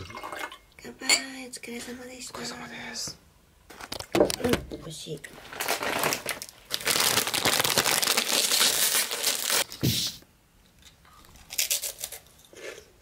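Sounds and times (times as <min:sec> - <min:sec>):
foil chip bag crinkling: 0:05.3 - 0:09.7, 0:11.4 - 0:12.6.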